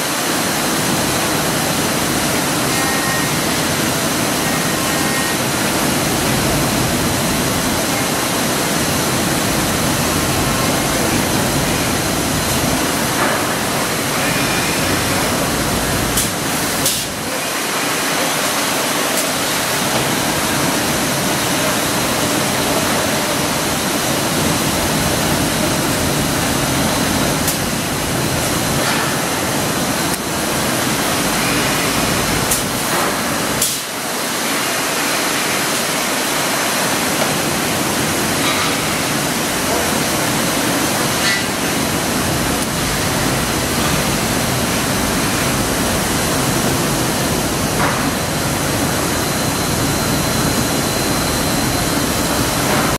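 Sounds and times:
woodworking machine rushing noise: 0.8s - 33.2s.

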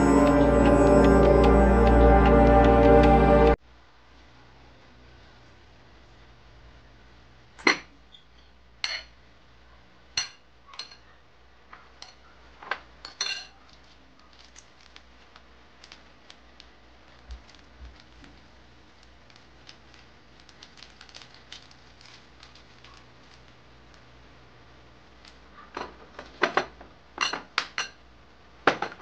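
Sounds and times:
metal spoon clinking on dishes: 13.0s - 13.6s.

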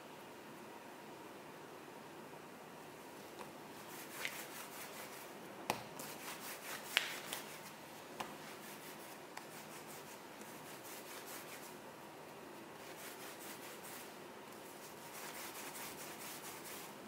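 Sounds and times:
hands rubbing dough: 3.8s - 11.8s, 12.7s - 17.0s.

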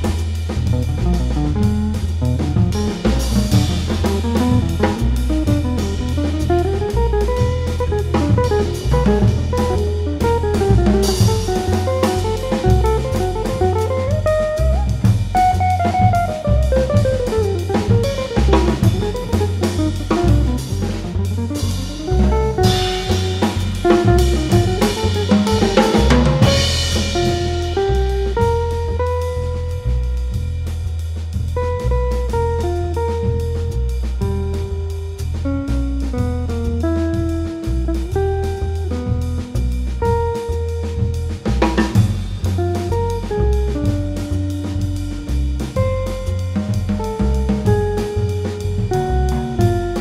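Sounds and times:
busy jazz drumming: 0.0s - 50.0s
walking double bass: 0.0s - 50.0s
electric guitar: 2.8s - 29.8s.

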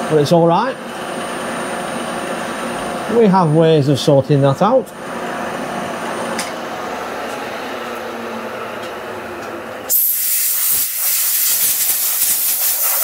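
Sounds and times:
air blow gun hissing: 9.9s - 13.0s.

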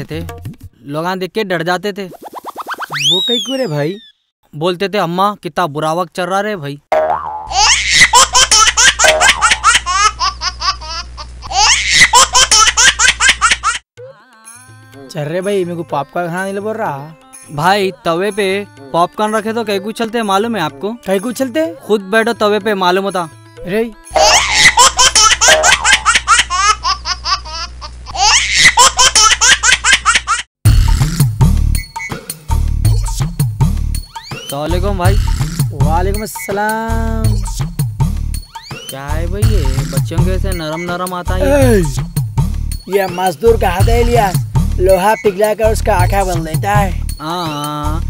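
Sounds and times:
high-pitched rapid laughing: 7.5s - 13.8s, 24.2s - 30.4s, 40.6s - 41.9s
canned laughter: 24.2s - 30.3s.

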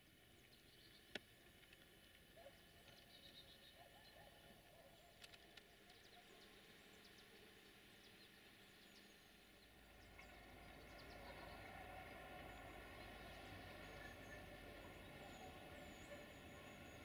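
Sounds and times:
distant diesel train approaching: 9.7s - 17.0s.

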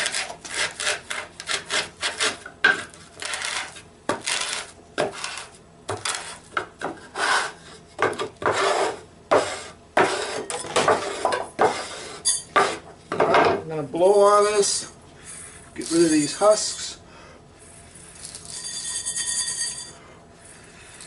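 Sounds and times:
wood block scraping rice: 0.0s - 12.8s.

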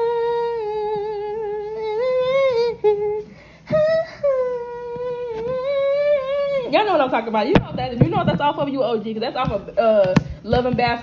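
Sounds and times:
woman humming a slow melody: 0.0s - 6.7s.

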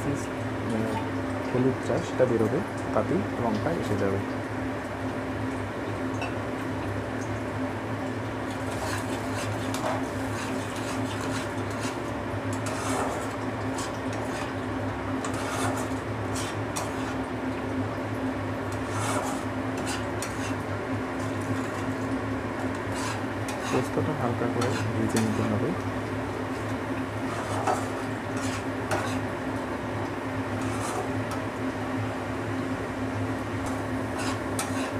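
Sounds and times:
paste frying: 8.4s - 34.9s
spatula scraping a pan: 8.6s - 14.6s, 15.2s - 17.2s, 18.7s - 21.9s, 22.7s - 25.5s, 27.2s - 29.3s, 30.5s - 31.2s, 33.7s - 34.9s.

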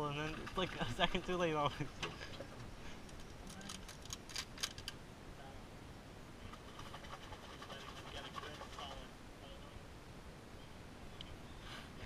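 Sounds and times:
small gear clicking and rattling: 3.0s - 5.0s.

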